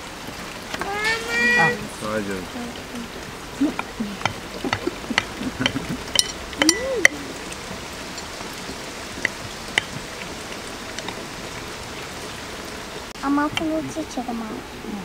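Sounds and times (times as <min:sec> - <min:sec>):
steady background hiss: 0:00.0 - 0:15.0
cutlery clinking on plates: 0:04.2 - 0:06.9.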